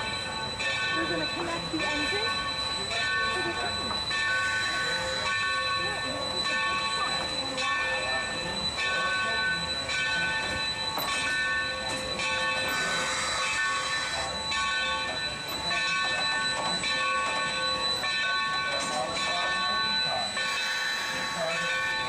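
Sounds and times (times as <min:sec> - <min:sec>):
locomotive bell ringing: 0:00.0 - 0:22.0
steam hiss: 0:12.6 - 0:14.2, 0:20.4 - 0:22.0.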